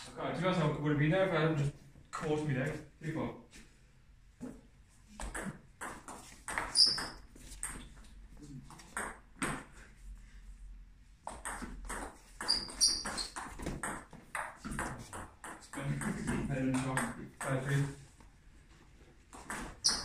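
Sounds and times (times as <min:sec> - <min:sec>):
short high squeaks: 0:06.7 - 0:07.3, 0:12.4 - 0:13.4, 0:19.8 - 0:20.0.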